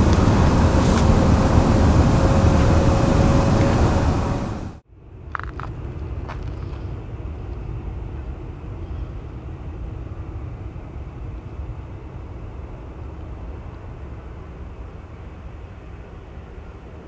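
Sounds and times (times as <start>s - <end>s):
distant jet engines rumbling: 0.0s - 4.8s.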